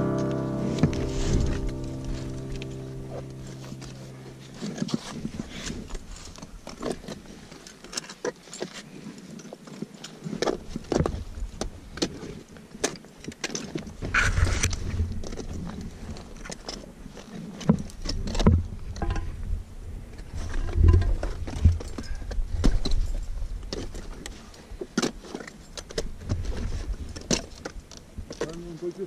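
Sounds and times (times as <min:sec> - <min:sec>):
metal climbing gear clinking: 0:04.3 - 0:11.0, 0:11.9 - 0:18.4, 0:20.6 - 0:28.6
wind rumble on microphone: 0:13.8 - 0:16.5, 0:17.8 - 0:24.5.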